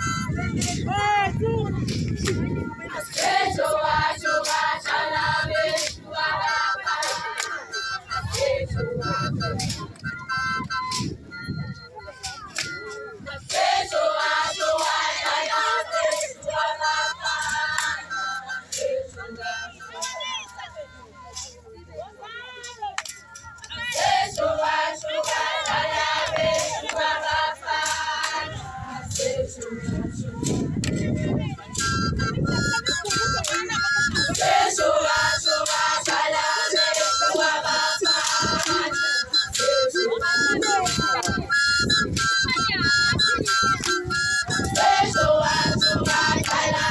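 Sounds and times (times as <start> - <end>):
girls and women singing in chorus: 1.9 - 9.8, 12.6 - 20.2, 23.7 - 32.0, 33.2 - 41.5, 43.2 - 46.9.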